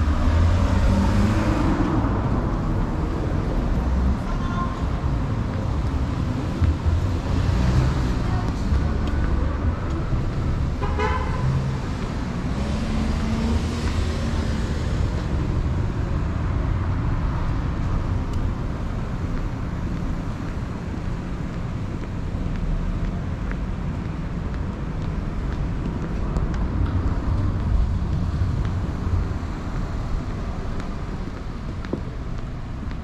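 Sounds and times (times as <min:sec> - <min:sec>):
street traffic rumble: 0:00.0 - 0:33.0
car horn toot: 0:10.8 - 0:11.4.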